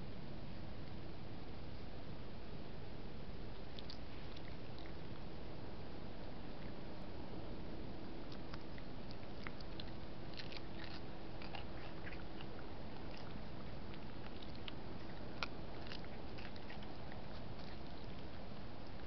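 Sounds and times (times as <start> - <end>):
raccoon chewing with crunching clicks: 3.5 - 5.3, 8.0 - 19.0.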